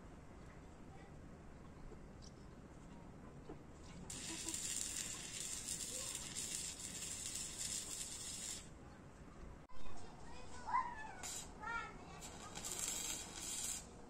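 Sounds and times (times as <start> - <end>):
steady hiss: 4.1 - 8.7, 11.1 - 14.0.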